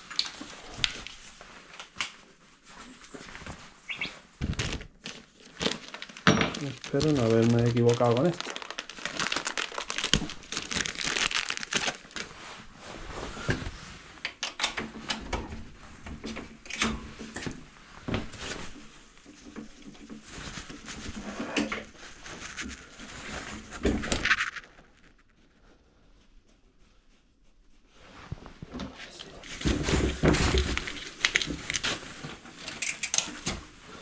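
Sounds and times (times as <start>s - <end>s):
plastic packaging crinkling: 3.9s - 12.4s, 21.8s - 25.4s, 29.2s - 32.3s.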